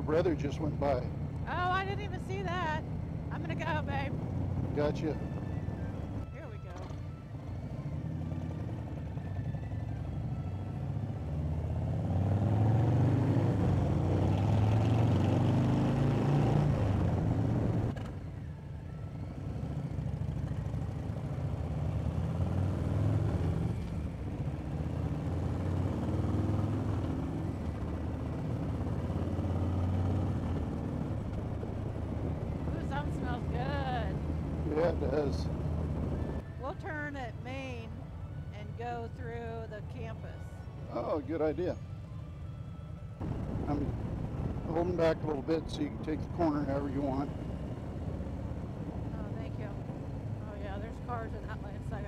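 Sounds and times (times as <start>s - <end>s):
motorcycle engines accelerating: 3.2s - 18.2s, 19.3s - 36.8s, 40.9s - 41.8s, 43.2s - 52.0s
wind noise on microphone: 43.2s - 46.1s.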